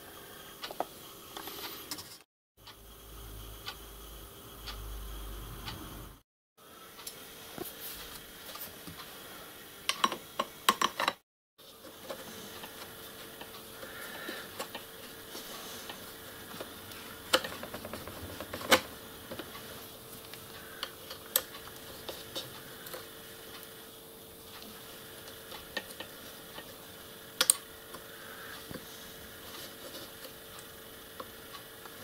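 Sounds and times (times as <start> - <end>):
faint steady hum: 0.0 - 32.0.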